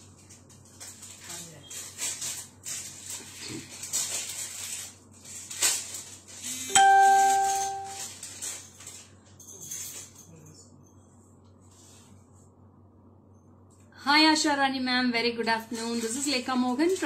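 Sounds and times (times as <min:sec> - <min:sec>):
chime ringing: 0:06.7 - 0:08.1.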